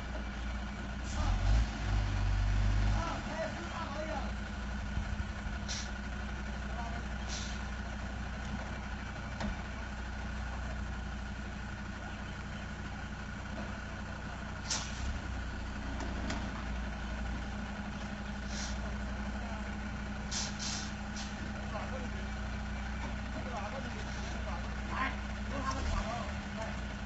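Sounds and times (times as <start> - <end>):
truck diesel engine running: 0.0 - 27.0
short air hisses: 5.7 - 6.0, 7.3 - 7.6, 14.6 - 15.0, 18.4 - 18.8, 20.3 - 21.4.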